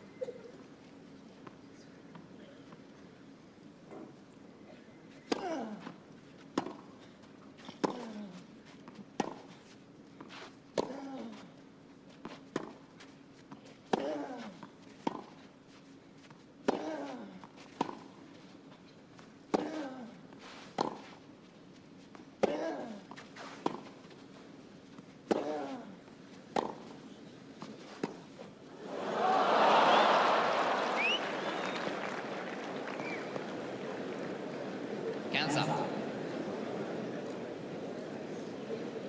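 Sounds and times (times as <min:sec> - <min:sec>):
tennis racket hitting ball: 0:25.3 - 0:25.7, 0:26.5 - 0:26.9
crowd cheering and applause: 0:28.8 - 0:37.2.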